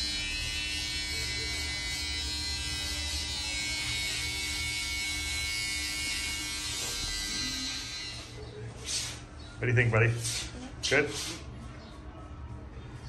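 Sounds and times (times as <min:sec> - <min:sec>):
electric hair clippers buzzing: 0:00.0 - 0:08.4.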